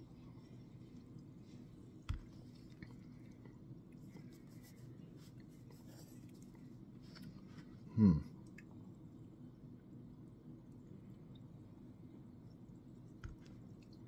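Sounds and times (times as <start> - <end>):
low throat sound: 7.9 - 8.3.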